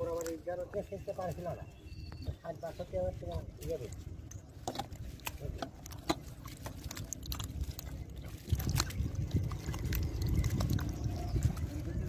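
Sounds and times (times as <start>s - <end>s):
hands squelching in wet mud: 0.0s - 12.0s
low rumble: 1.5s - 12.0s.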